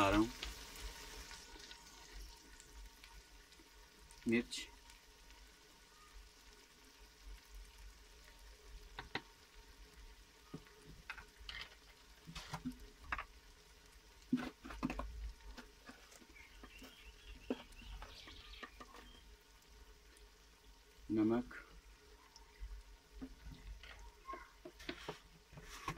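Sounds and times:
masala frying in oil crackling: 0:00.0 - 0:25.9.

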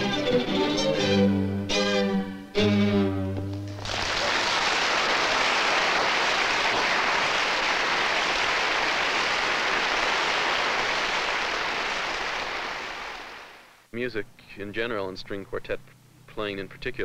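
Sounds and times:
audience applause: 0:03.8 - 0:13.7.

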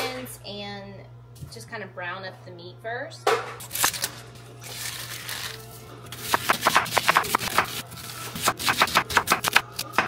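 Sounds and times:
onion skin peeling rustle: 0:03.7 - 0:05.8
knife chopping on wooden board: 0:06.2 - 0:07.8, 0:08.4 - 0:10.0.

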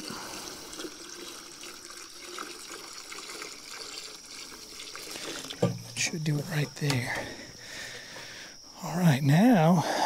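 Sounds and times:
water pouring into a bucket: 0:00.0 - 0:06.2.

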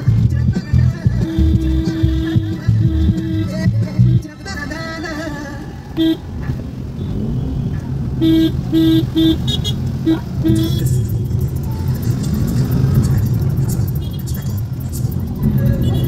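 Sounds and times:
low rumble of traffic: 0:00.0 - 0:16.0
car horn honks: 0:01.2 - 0:04.3, 0:06.0 - 0:06.3, 0:08.2 - 0:12.0, 0:13.9 - 0:14.6, 0:15.4 - 0:16.0.

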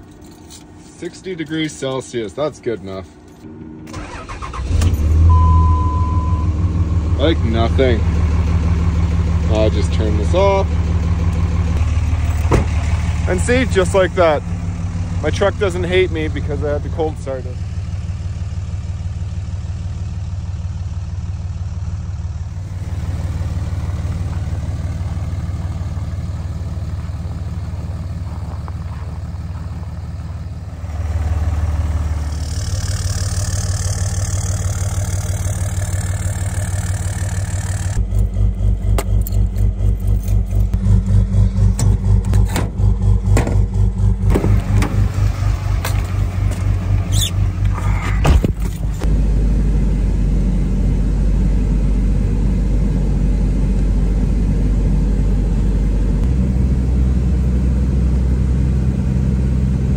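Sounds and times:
pickup engine idling: 0:03.1 - 0:59.9
engine clicks and knocks: 0:11.2 - 0:14.7, 0:32.8 - 0:49.1.

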